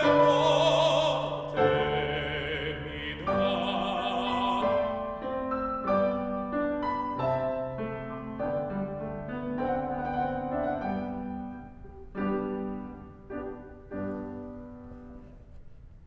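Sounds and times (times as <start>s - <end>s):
grand piano chords: 0.0s - 16.0s.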